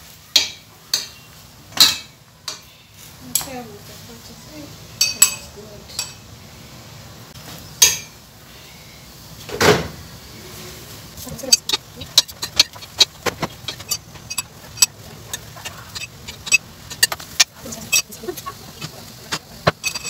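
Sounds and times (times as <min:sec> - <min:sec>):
thump: 0:09.5 - 0:10.0
metal spoon scraping frying pan: 0:11.2 - 0:20.0.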